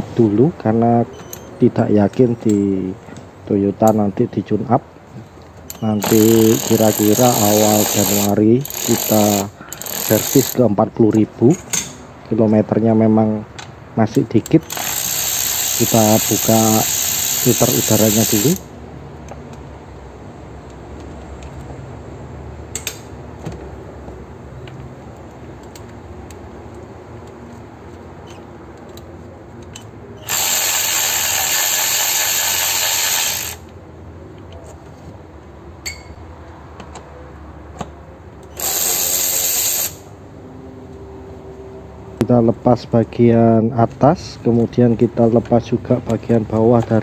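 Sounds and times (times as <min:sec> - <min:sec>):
electric ratchet running: 0:06.0 - 0:10.6, 0:14.6 - 0:18.7, 0:30.2 - 0:33.7, 0:38.6 - 0:40.1.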